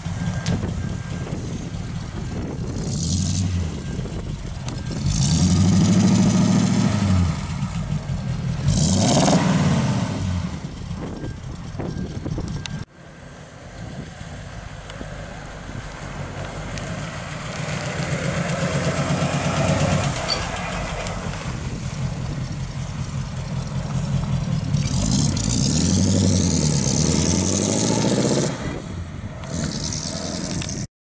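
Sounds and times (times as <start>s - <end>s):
engine revving: 0.0s - 12.8s, 16.3s - 30.9s
pickup truck engine driving past: 13.2s - 30.8s.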